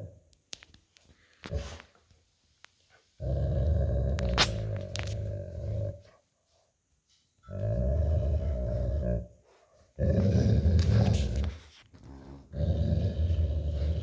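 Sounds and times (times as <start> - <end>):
dog growling: 3.2 - 6.2, 7.4 - 9.4, 10.0 - 11.6, 12.2 - 14.0.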